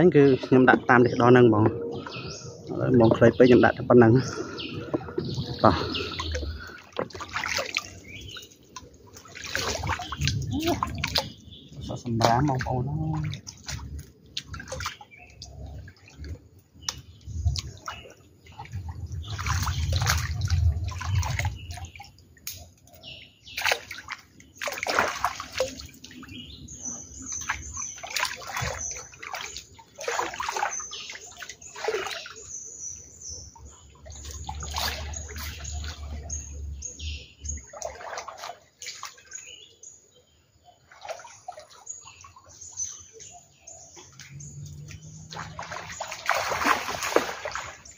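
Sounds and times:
water sloshing and splashing: 0.0 - 47.9.

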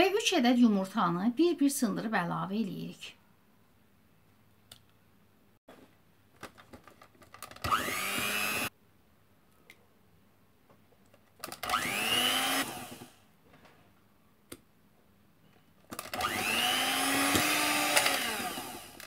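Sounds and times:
electric hand mixer whine: 7.6 - 8.7, 11.6 - 13.2, 16.0 - 19.0.

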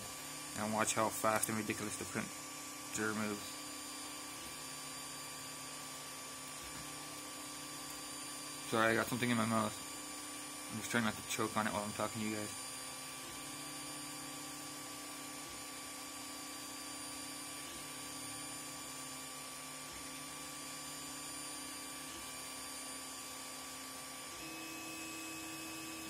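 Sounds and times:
stepper motors humming: 0.0 - 15.6.

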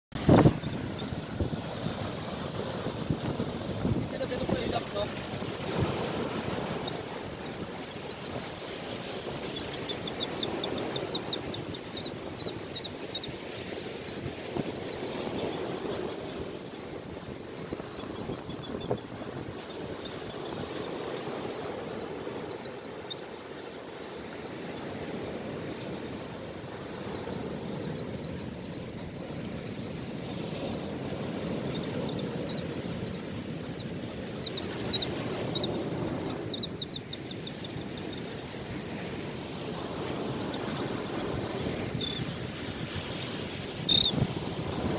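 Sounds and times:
surf breaking on beach: 0.2 - 7.8, 39.0 - 44.9.

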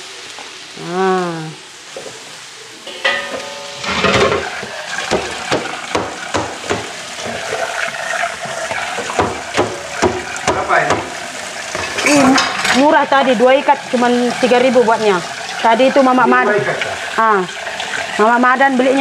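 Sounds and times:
food sizzling in hot oil: 0.0 - 19.0
metal spatula scraping a wok: 2.9 - 5.0.

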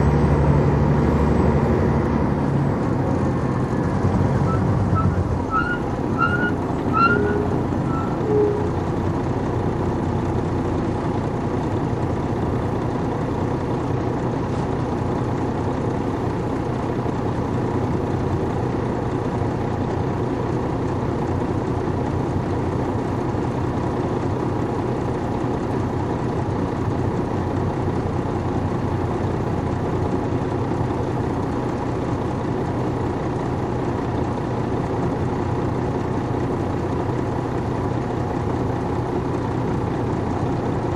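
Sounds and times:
diesel engine running: 0.0 - 40.9
short high squeaks: 4.4 - 8.8.

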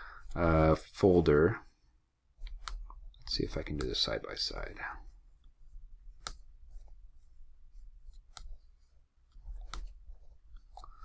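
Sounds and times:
computer mouse clicks: 2.4 - 3.0, 6.2 - 6.4.

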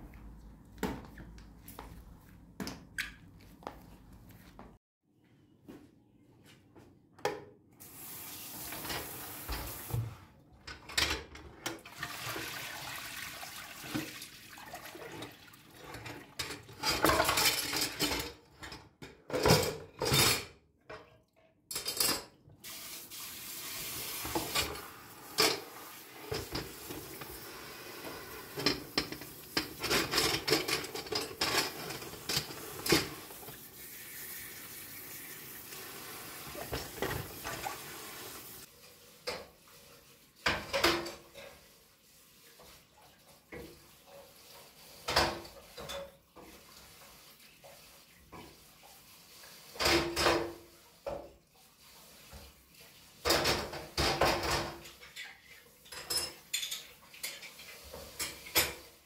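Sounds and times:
tap water splashing into sink: 11.7 - 15.6, 36.4 - 38.3, 40.4 - 41.6
metal grates clattering on plastic: 16.0 - 20.5, 28.5 - 33.4.

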